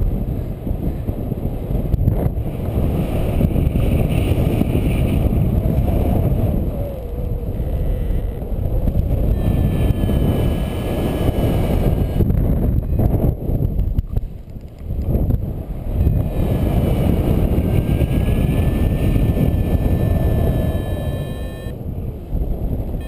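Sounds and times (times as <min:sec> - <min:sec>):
wind buffeting microphone: 0:00.0 - 0:23.0
faint high tones: 0:07.0 - 0:08.6, 0:09.2 - 0:12.2, 0:17.8 - 0:21.8.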